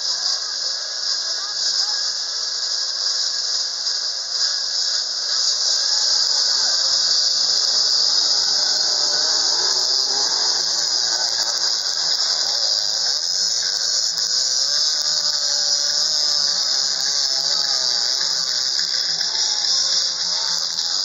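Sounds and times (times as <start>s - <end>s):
high-pitched hiss: 0.0s - 21.0s
dirt bike engines revving: 6.3s - 21.0s.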